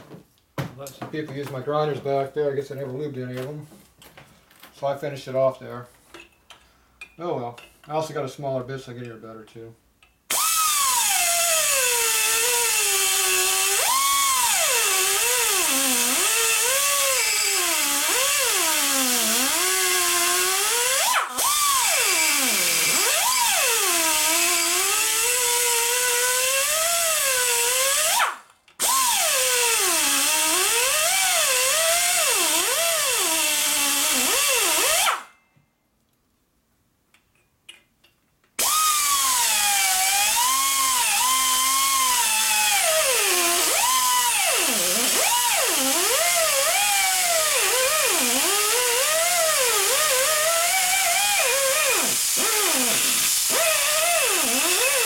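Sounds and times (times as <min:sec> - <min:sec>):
air die grinder whining: 0:38.6 - 0:55.0.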